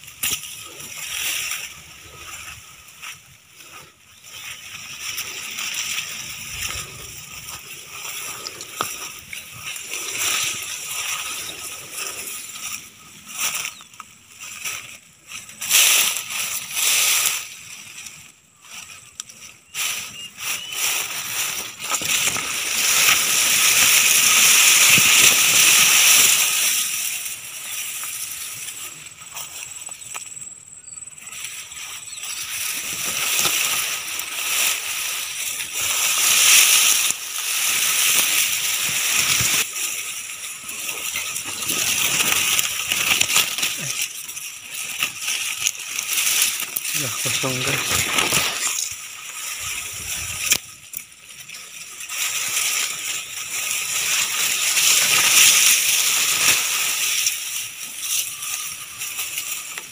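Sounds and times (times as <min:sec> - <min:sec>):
grass and reeds swishing: 0:00.0 - 0:30.2, 0:31.2 - 0:59.9.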